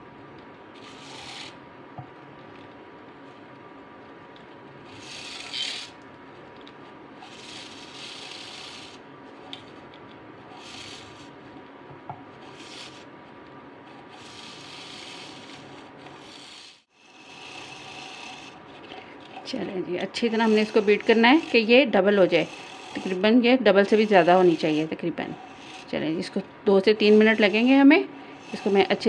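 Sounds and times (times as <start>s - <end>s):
handheld coffee beater whirring: 0.8s - 1.6s, 4.9s - 6.0s, 7.2s - 9.6s, 10.6s - 11.4s, 12.4s - 13.1s, 14.0s - 29.0s
whisk scraping against mug: 4.9s - 6.0s, 7.2s - 9.6s, 14.0s - 29.0s.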